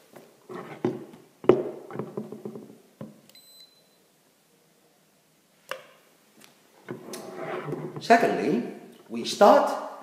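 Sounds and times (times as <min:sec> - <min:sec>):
thermometer beep: 0:03.4 - 0:04.0.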